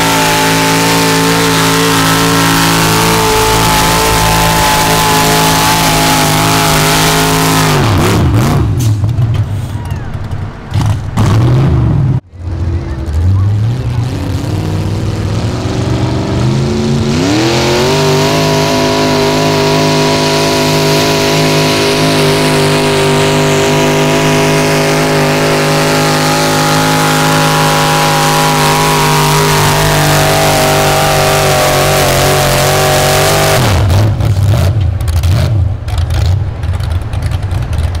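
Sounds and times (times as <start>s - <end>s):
truck engine at full throttle: 0.0s - 38.0s.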